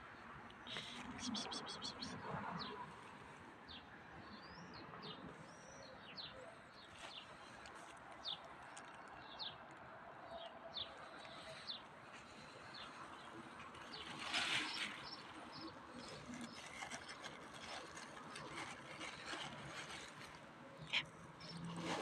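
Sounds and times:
faint outdoor background noise: 0:00.0 - 0:22.0
small birds chirping: 0:10.3 - 0:21.7.

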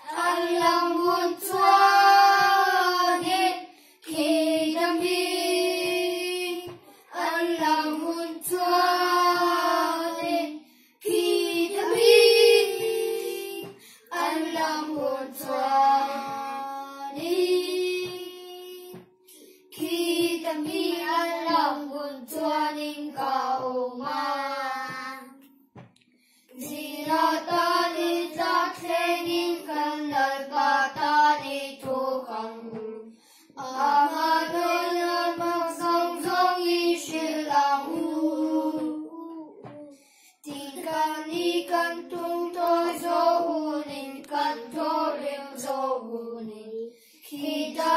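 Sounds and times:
children singing a hymn: 0:00.0 - 0:19.1, 0:19.7 - 0:25.2, 0:26.6 - 0:39.8, 0:40.4 - 0:47.9.

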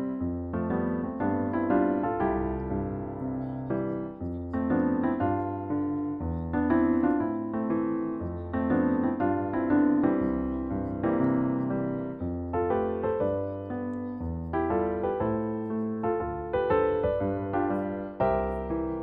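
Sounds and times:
solo piano music: 0:00.0 - 0:19.0.

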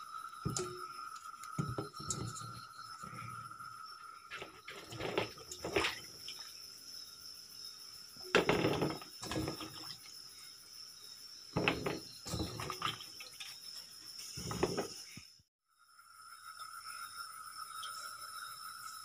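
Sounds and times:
water splashing in a steel bowl: 0:00.2 - 0:06.7, 0:08.2 - 0:10.2, 0:11.6 - 0:14.9.

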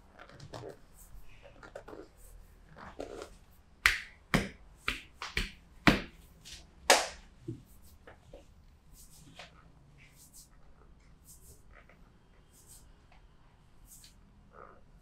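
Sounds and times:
hands slapping a back: 0:03.8 - 0:07.2.

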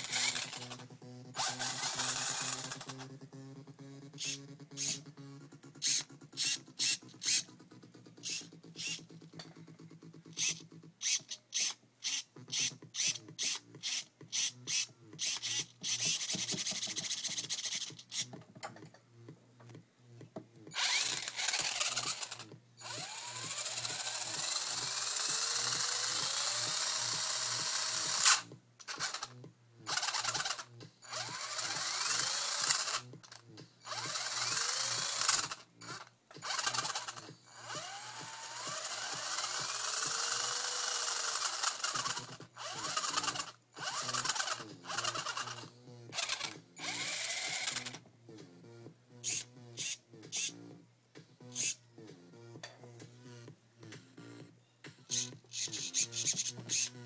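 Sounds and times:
electric motor whine: 0:00.0 - 0:03.1, 0:20.8 - 0:33.3, 0:33.9 - 0:48.0.

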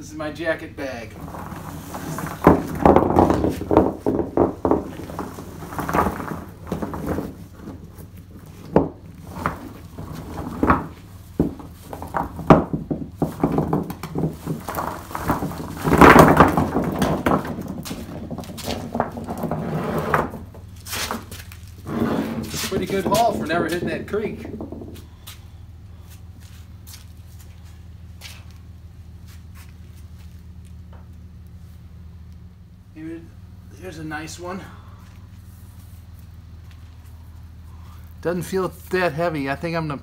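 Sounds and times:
heavy rocks thunking on concrete: 0:01.1 - 0:25.6.

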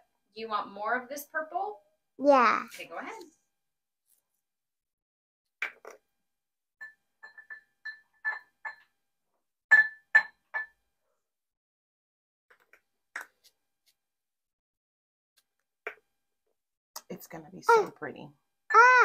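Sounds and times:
spoon tapping glass beaker: 0:06.8 - 0:08.9, 0:09.7 - 0:10.8.

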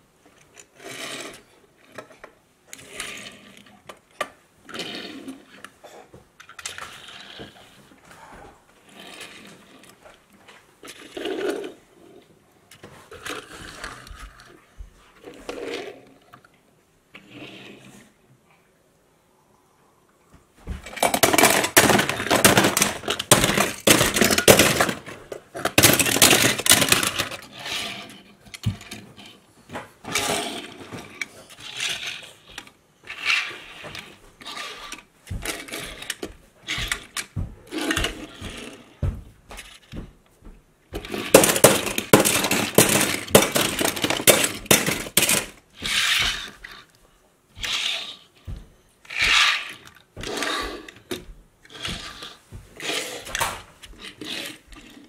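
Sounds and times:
metal toy cars clattering: 0:20.8 - 0:29.0, 0:41.0 - 0:46.8, 0:49.1 - 0:50.9.

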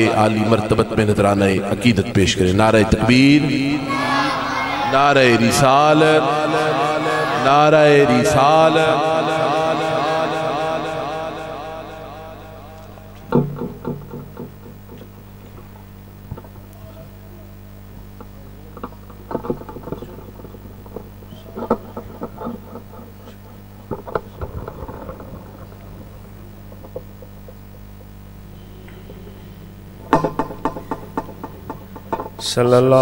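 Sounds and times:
mains hum: 0:00.0 - 0:33.0
microphone stand knocks: 0:13.2 - 0:15.0, 0:30.0 - 0:32.5.

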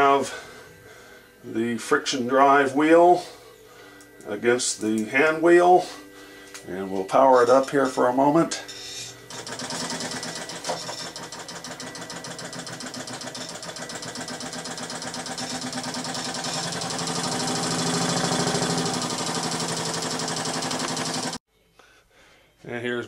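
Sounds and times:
sewing machine running: 0:09.3 - 0:21.4.

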